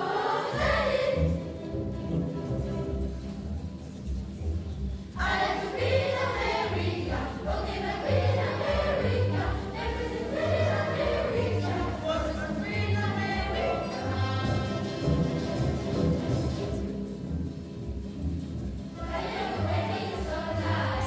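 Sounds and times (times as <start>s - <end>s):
children's choir singing: 0.0s - 2.0s, 5.1s - 15.4s, 19.0s - 21.0s.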